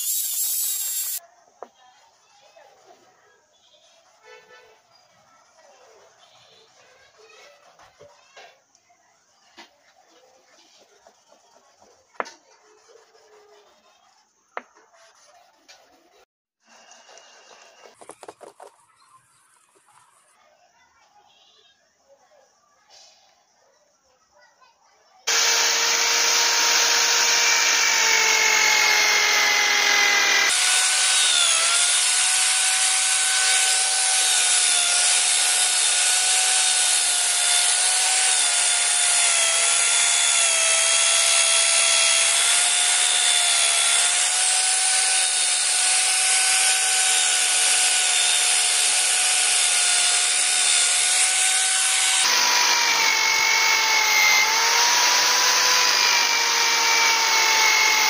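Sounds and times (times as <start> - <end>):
drill motor whine: 0.0 - 1.2, 25.3 - 58.0
polishing wheel grinding metal: 0.0 - 1.2, 25.3 - 58.0.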